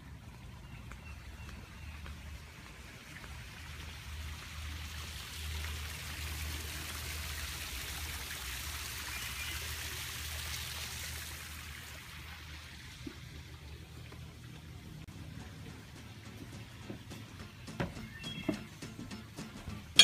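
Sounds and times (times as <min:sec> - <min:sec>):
waterfall splashing over rocks: 0:03.1 - 0:12.1.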